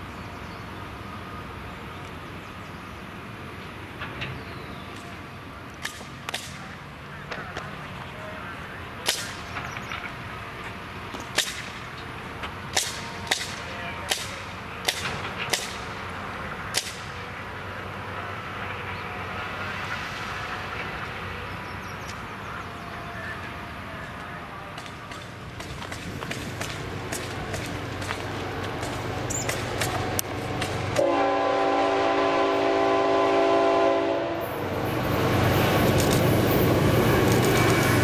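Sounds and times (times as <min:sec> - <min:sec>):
machinery engine hum: 0:00.0 - 0:38.0
metal clanks of track work: 0:03.6 - 0:05.2, 0:09.0 - 0:17.3, 0:24.0 - 0:31.0, 0:34.4 - 0:38.0.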